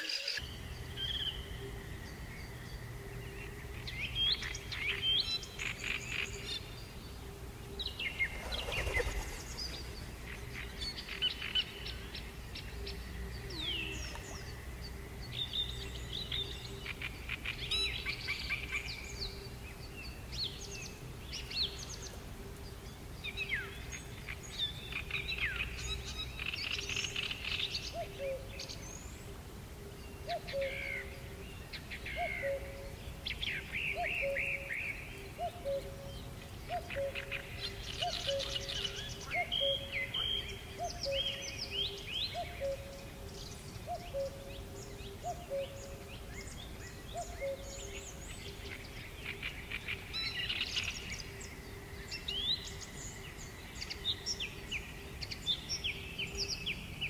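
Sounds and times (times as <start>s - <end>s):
birds chirping and singing: 0.0s - 57.0s.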